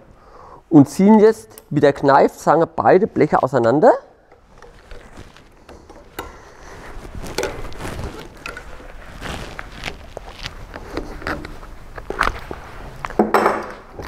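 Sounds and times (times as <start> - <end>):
metal clicks scrapes and creaks: 10.7 - 12.4.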